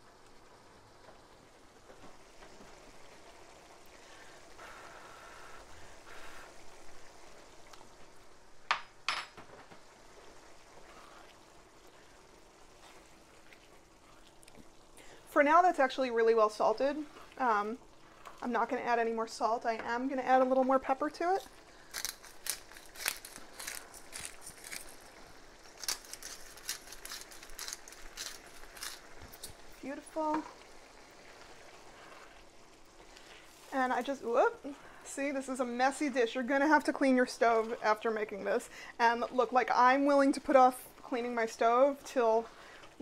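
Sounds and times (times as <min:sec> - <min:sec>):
sauce bubbling in a pan: 0:00.0 - 0:43.0
pepper mill grinding: 0:21.4 - 0:29.6.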